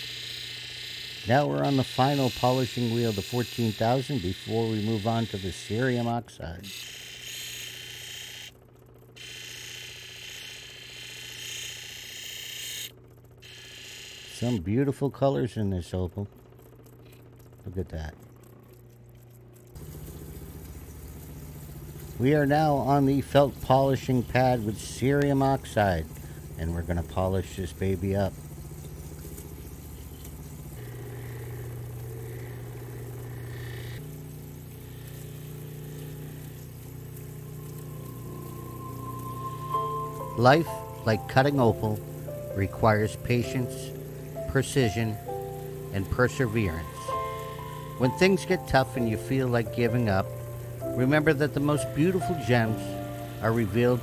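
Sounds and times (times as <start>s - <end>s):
polishing machine motor hum: 0.0s - 6.1s, 19.8s - 54.0s.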